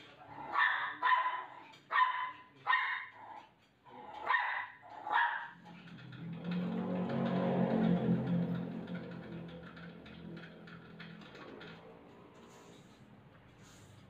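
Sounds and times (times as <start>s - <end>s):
small dog barking: 0.4s - 3.4s, 4.1s - 5.6s.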